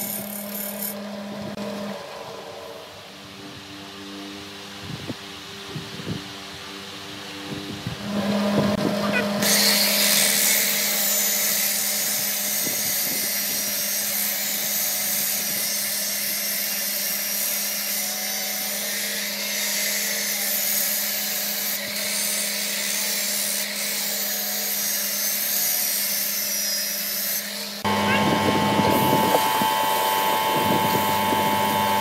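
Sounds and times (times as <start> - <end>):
motors humming: 7.4 - 13.8, 27.5 - 32.0
sanding hiss: 9.4 - 27.9.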